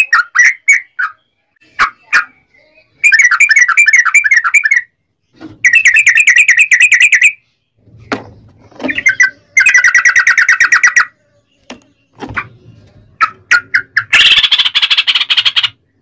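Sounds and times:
short bird calls: 13.6 - 16.0.

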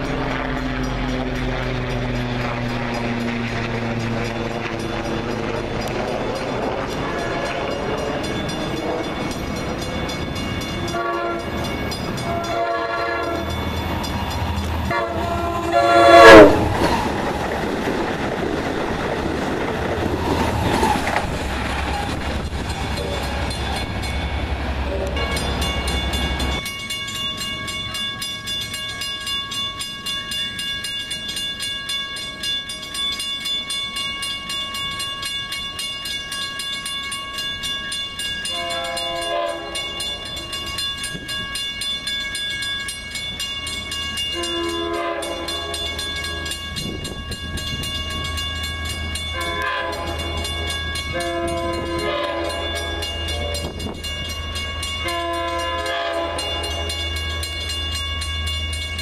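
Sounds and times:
crossing bell ringing: 0.0 - 59.0
train engine and wheels rumbling: 0.0 - 59.0
train horn blasts: 6.9 - 8.0, 10.8 - 13.6, 14.9 - 16.8, 24.8 - 25.5, 38.4 - 40.2, 44.3 - 46.5, 49.3 - 54.2, 54.9 - 57.2.

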